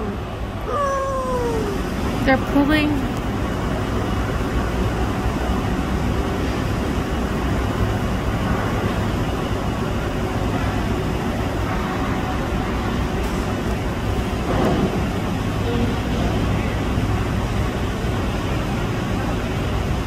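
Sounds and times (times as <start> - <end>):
harbour rumble and hiss: 0.0 - 20.0.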